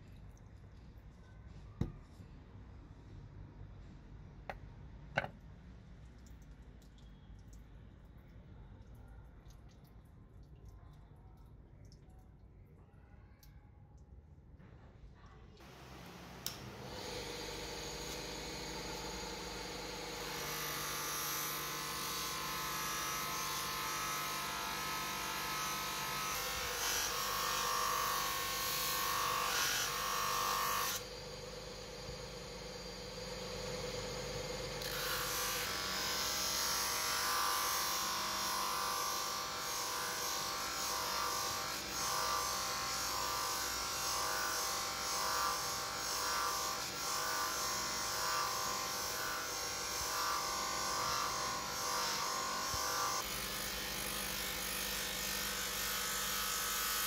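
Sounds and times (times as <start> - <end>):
bench grinder motor whine: 15.6 - 57.0
blade rubbing on grinding wheel: 16.2 - 57.0.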